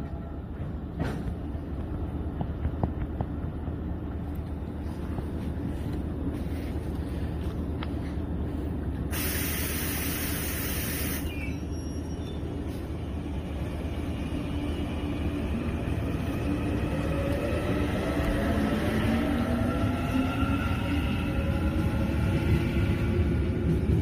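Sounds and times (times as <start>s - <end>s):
train rumbling: 0.0s - 24.0s
air hissing: 9.1s - 11.5s.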